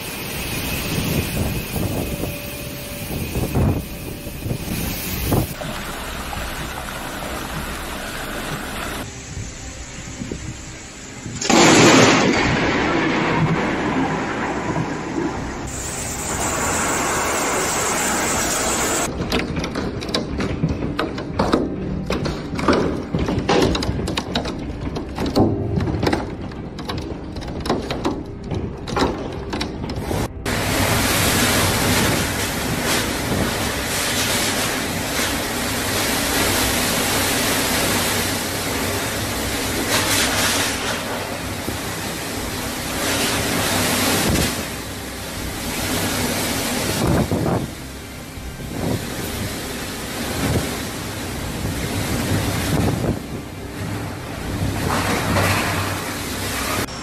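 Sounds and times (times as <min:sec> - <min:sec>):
hailstones pelting wood and water: 0:30.5 - 0:47.9
storm wind buffeting microphone: 0:46.8 - 0:47.8, 0:51.6 - 0:55.4.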